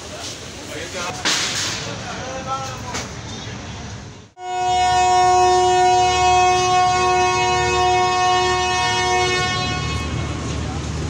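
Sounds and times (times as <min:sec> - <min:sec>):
locomotive horn blast: 0:04.4 - 0:10.9.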